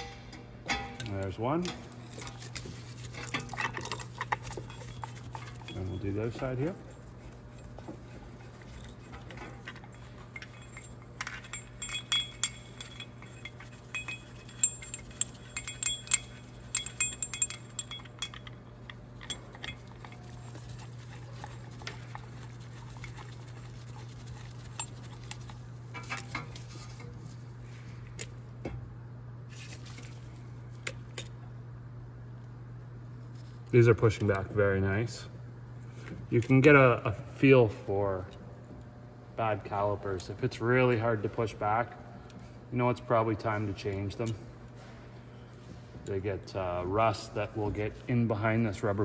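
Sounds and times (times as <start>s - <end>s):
steady low hum: 0.0s - 49.0s
metal tool clinks and clicks: 0.7s - 26.7s.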